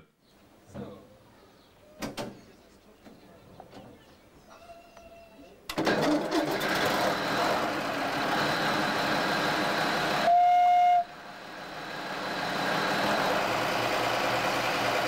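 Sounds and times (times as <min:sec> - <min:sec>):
locomotive diesel engine running: 0:05.8 - 0:15.0
locomotive horn blast: 0:10.2 - 0:11.2.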